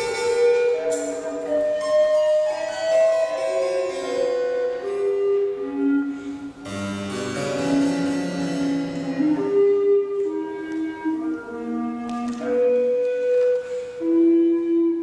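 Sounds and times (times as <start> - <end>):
harpsichord: 6.6 - 9.4.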